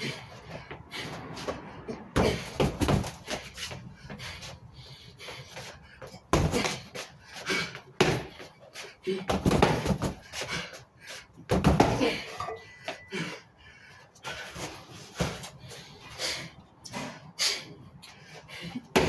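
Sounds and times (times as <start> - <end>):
thuds on punching bag: 9.3 - 10.2.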